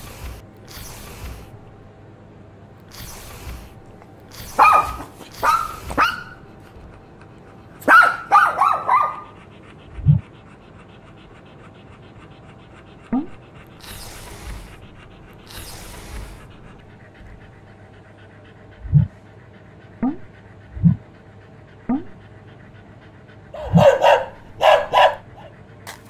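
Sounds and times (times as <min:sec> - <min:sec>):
dog sniffing: 0:00.0 - 0:01.9, 0:02.8 - 0:26.0
dog barking: 0:04.3 - 0:06.6, 0:07.8 - 0:09.4, 0:23.6 - 0:25.5
dog yelping: 0:04.3 - 0:07.0, 0:07.8 - 0:09.5, 0:23.6 - 0:25.5.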